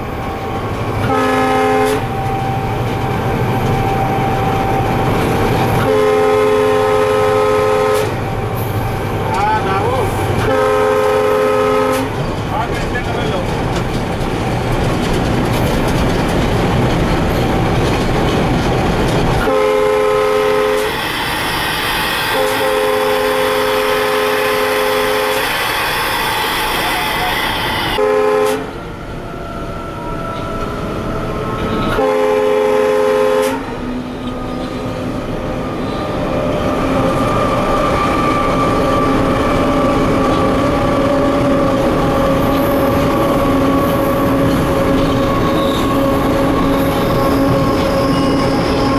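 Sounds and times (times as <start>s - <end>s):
rail running noise: 0.0s - 48.9s
locomotive air horn blasts: 1.0s - 2.8s, 3.8s - 8.9s, 10.4s - 12.2s, 19.4s - 28.8s, 31.6s - 33.9s.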